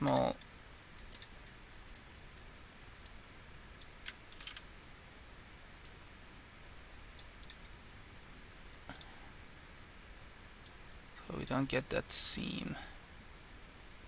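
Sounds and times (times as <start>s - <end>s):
mouse and keyboard clicks: 0.0s - 0.3s, 4.0s - 4.6s, 7.2s - 7.7s
faint room hiss: 0.0s - 14.0s.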